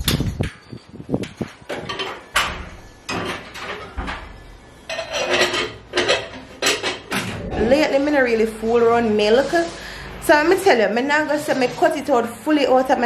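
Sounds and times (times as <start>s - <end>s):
pots and cups clinking: 3.1s - 7.2s.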